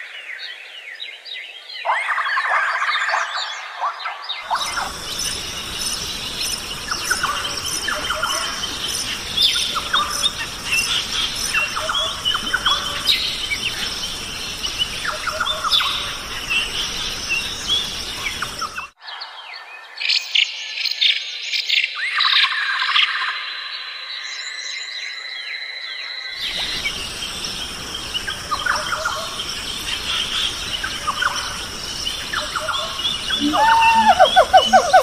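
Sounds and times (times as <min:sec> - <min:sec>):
birds chirping and whistling: 0:04.4 - 0:18.9, 0:26.4 - 0:35.0
high insect buzz: 0:26.4 - 0:35.0
sharp repeated bird notes: 0:32.7 - 0:35.0.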